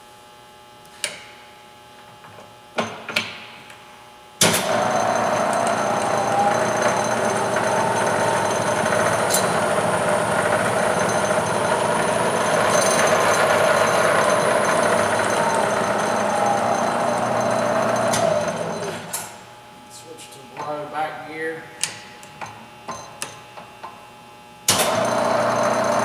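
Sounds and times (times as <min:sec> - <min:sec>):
milling spindle whining: 0:04.7 - 0:19.1.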